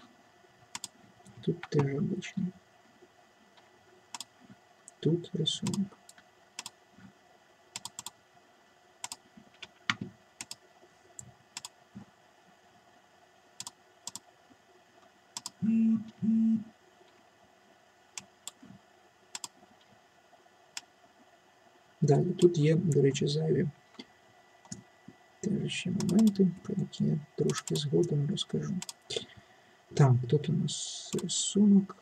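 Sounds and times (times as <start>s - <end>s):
mouse and keyboard clicks: 7.8s - 8.2s, 13.6s - 14.2s, 19.4s - 19.6s
short low hums: 15.4s - 16.7s.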